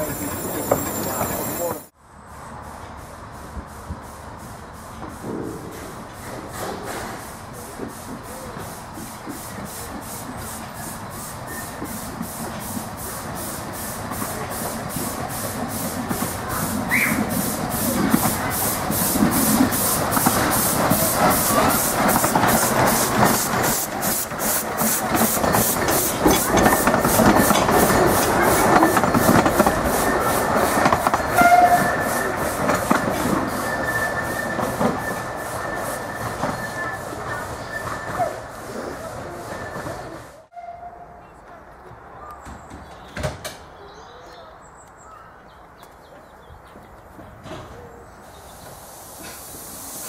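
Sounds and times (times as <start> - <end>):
miniature train passing: 0.0 - 50.0
wheels clicking over rail joints: 11.6 - 40.2
thin high squeal: 33.2 - 38.4.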